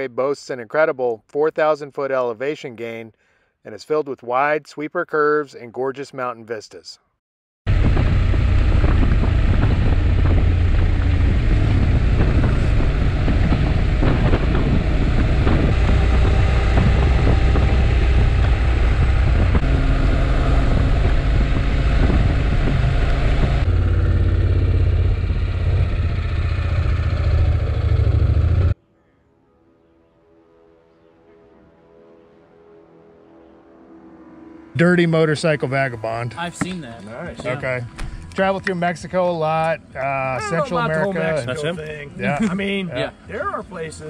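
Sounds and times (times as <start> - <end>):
wind rush on microphone: 7.7 - 26.6
motorcycle engine drone: 7.7 - 29.0, 30.6 - 44.0.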